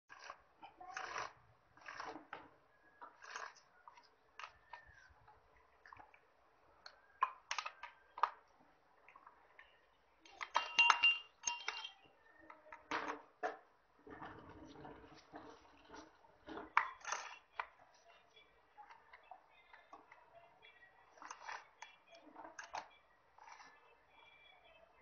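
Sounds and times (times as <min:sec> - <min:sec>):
ringing metal clinks: 0:10.4 - 0:12.1.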